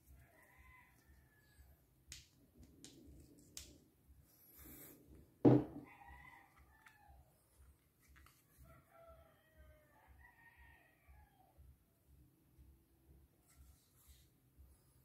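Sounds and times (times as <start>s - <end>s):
magazine thump on wooden table: 5.5s - 5.8s.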